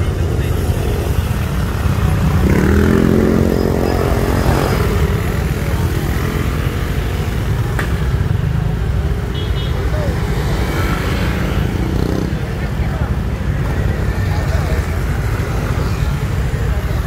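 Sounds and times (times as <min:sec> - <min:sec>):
low rumble of traffic: 0:00.0 - 0:17.0
motorcycle engine passing: 0:01.9 - 0:06.6.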